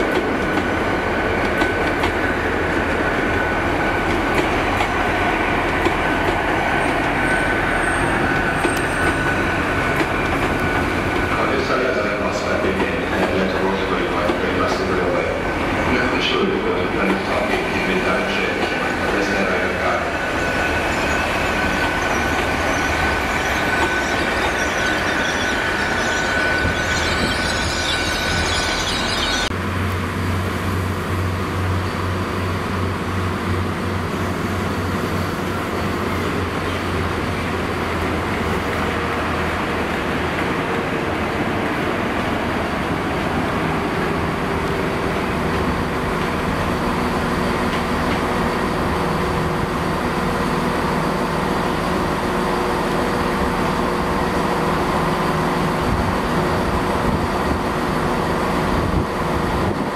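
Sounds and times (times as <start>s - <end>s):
train wheels on rails: 0.0s - 59.9s.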